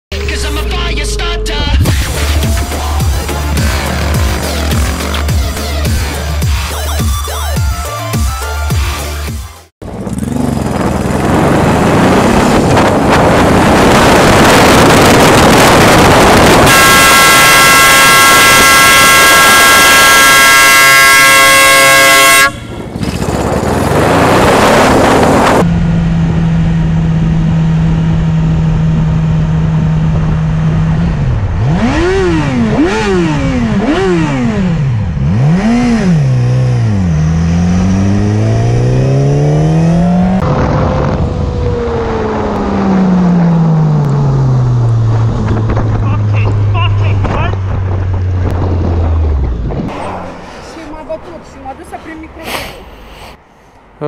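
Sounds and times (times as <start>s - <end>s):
motorcycle engine revving: 0.1s - 7.5s, 9.8s - 52.0s
loud wind noise: 9.8s - 19.8s, 22.1s - 54.0s
horn blaring: 16.3s - 23.1s.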